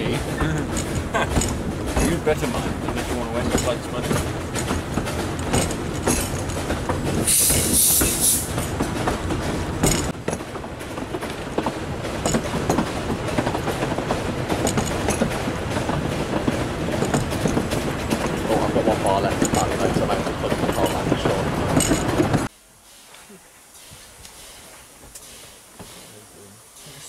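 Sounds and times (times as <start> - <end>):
train wheels rumbling over rails: 0.0 - 22.5
short hiss: 7.2 - 8.5, 22.8 - 27.0.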